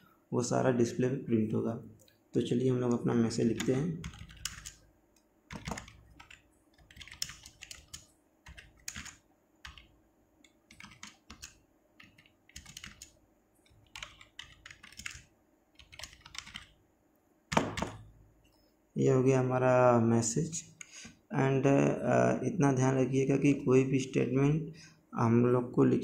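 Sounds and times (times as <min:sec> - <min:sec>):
computer keyboard typing: 0:03.3 - 0:04.8, 0:05.5 - 0:16.8, 0:17.5 - 0:18.1.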